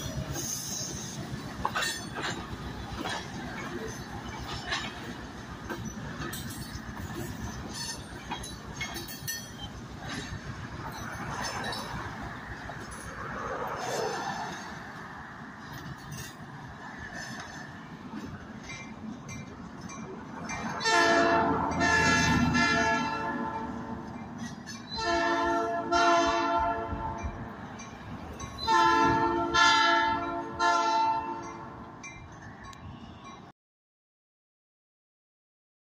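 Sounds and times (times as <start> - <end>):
road traffic passing: 0.0 - 33.5
locomotive air horn blasts: 20.8 - 24.0, 25.0 - 27.4, 28.6 - 31.8.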